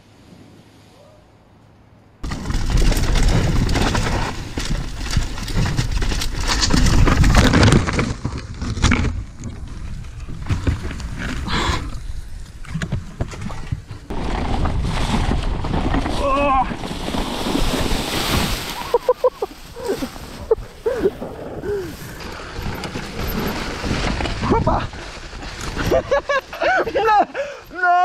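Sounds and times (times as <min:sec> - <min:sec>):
bike crashing into bushes: 0:02.2 - 0:09.3, 0:14.1 - 0:21.6
mountain bike rattling over rough ground: 0:02.2 - 0:27.3.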